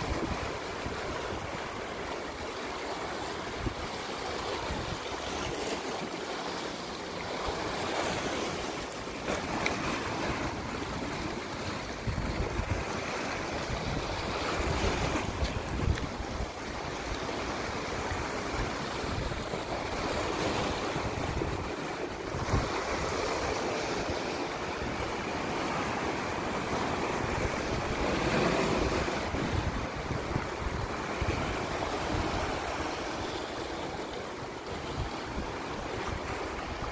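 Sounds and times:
wind buffeting microphone: 0.0 - 2.4, 9.3 - 36.9
waves washing over rocks: 0.0 - 36.9.

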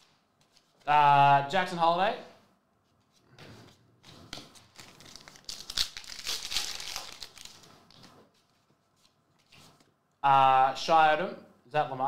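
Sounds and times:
trading cards rustling: 4.0 - 9.9.

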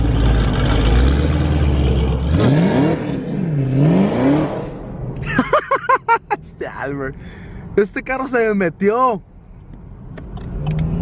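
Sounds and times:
car engine revving: 0.0 - 5.3.

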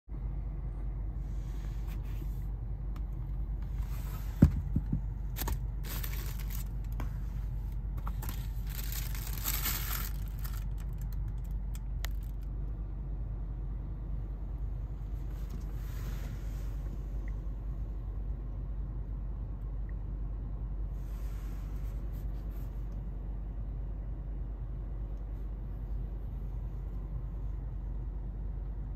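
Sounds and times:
low rumble inside car: 0.1 - 28.9
cardboard and paper rustling: 4.3 - 7.2, 8.0 - 11.4.

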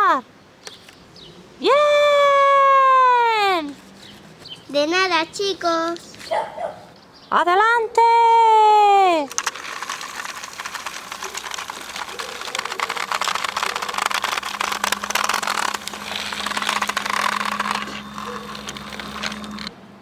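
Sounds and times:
toy train wheels rattling on track: 9.2 - 19.7
small motor hum: 9.4 - 19.7.

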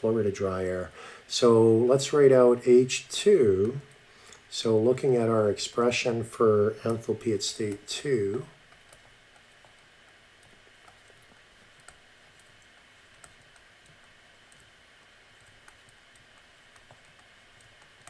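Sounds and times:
low steady hiss: 0.0 - 18.0
stylus tapping tablet screen: 6.8 - 18.0.

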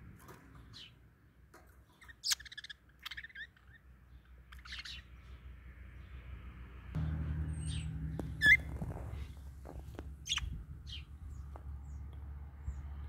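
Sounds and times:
budgerigars chirping: 2.0 - 5.4, 7.5 - 12.0.

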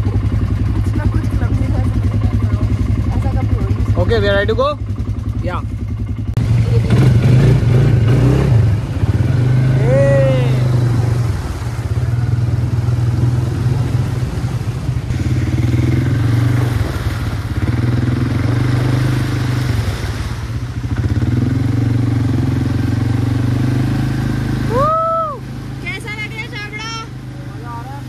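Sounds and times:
quad bike engine revving: 0.0 - 28.0
person shouting: 9.8 - 10.7, 24.7 - 25.4.

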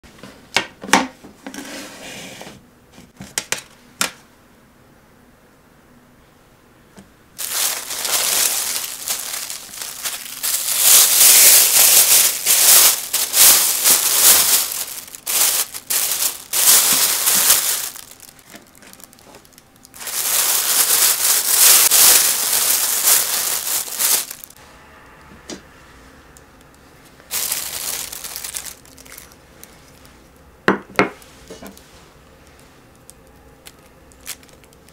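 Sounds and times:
plastic bag crinkling: 7.4 - 24.6, 27.3 - 30.4, 32.4 - 34.9.

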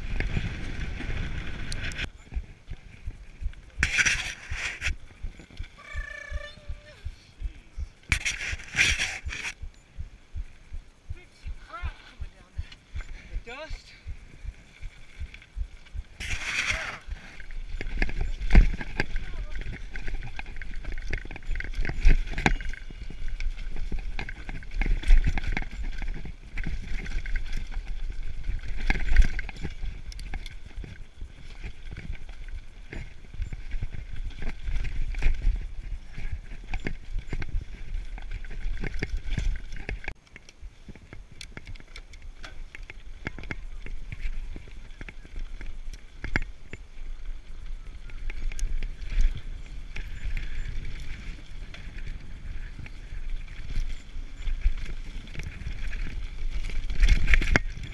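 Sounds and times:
wind rumble on microphone: 0.0 - 57.9
bike clattering over rocks: 16.3 - 47.0, 47.6 - 57.9.

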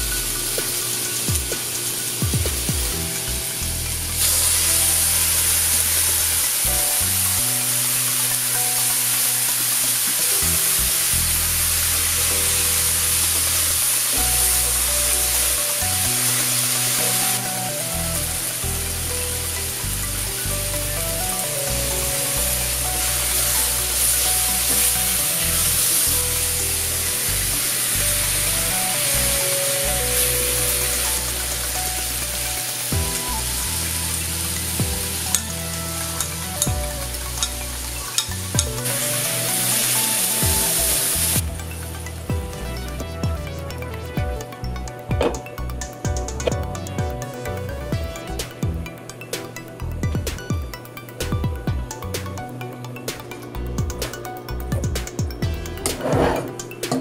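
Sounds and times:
background music: 0.0 - 57.0
vegetables sizzling in a skillet: 4.1 - 41.5.

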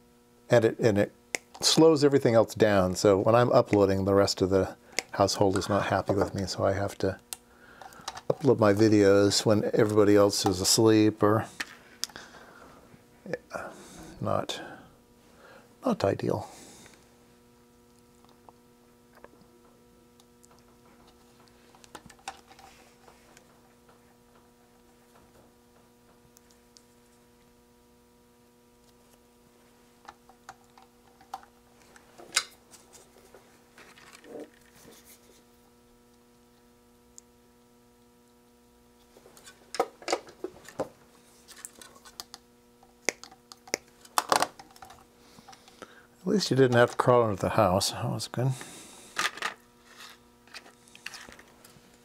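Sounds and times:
electrical hum: 0.0 - 52.0
small components clicking and rattling: 7.8 - 8.5, 30.1 - 32.5.

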